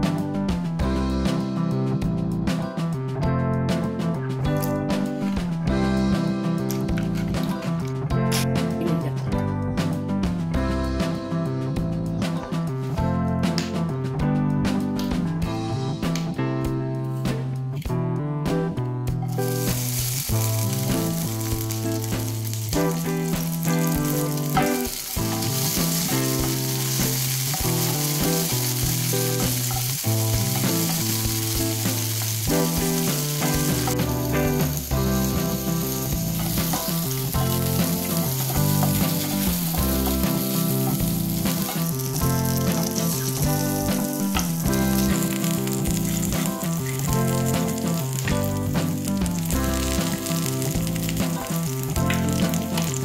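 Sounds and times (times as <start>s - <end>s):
background music: 0.0s - 53.0s
chillies sizzling in oil: 19.3s - 53.0s.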